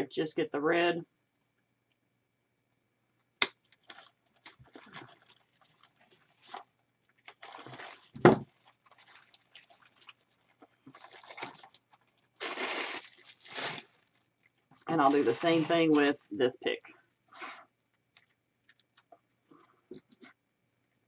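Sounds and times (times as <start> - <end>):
plastic rustling and crinkling: 3.6 - 16.4.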